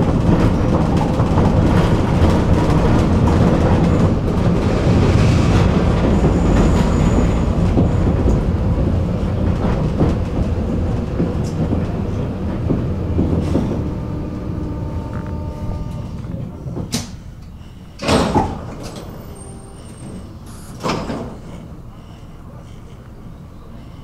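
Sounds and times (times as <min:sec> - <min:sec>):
tram wheels rumbling on track: 0:00.0 - 0:24.0.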